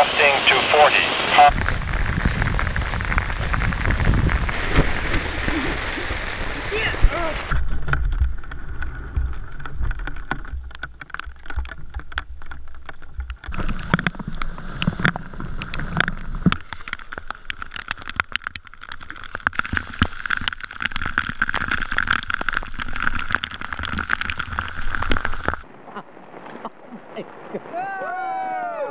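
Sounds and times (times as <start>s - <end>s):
rushing river water: 0.0s - 2.2s, 2.8s - 7.6s
rain: 0.0s - 28.9s
low rumble: 1.5s - 6.7s.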